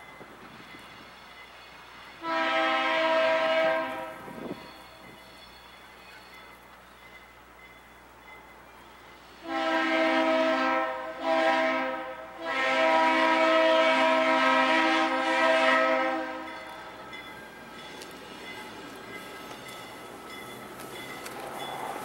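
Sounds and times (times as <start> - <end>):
locomotive air horn blasts: 2.2 - 4.6, 9.4 - 16.6.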